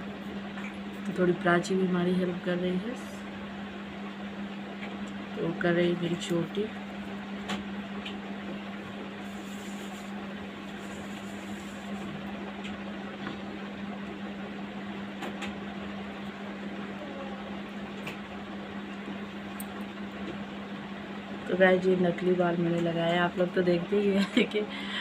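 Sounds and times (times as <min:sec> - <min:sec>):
motor-like drone with hiss: 0:09.2 - 0:12.2.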